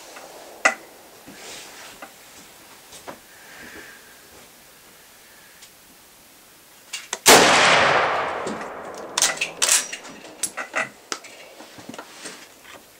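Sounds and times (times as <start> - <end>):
rifle shot with echo: 7.3 - 10.3
rifle bolt clicks and clanks: 8.3 - 11.5.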